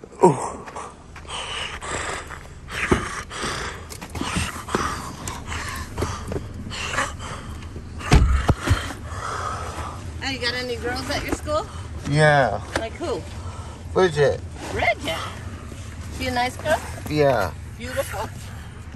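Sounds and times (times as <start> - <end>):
heavy thump: 1.1 - 9.1.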